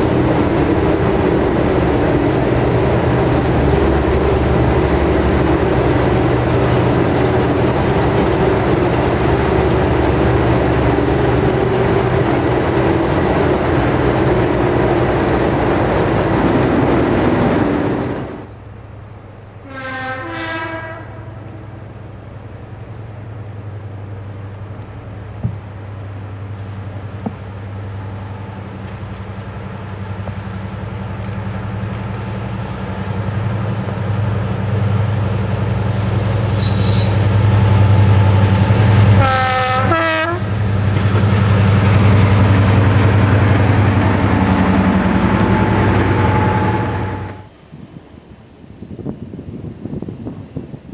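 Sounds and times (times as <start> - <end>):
diesel locomotive engine running: 0.0 - 19.6, 21.5 - 47.6
locomotive engines droning: 0.0 - 19.7, 20.9 - 48.8
distant train horn: 19.6 - 22.0, 39.0 - 40.6, 43.8 - 47.5.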